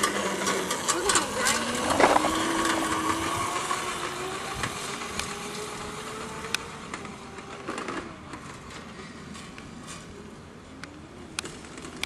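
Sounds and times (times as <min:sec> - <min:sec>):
scooter motor whining: 0:00.0 - 0:09.0.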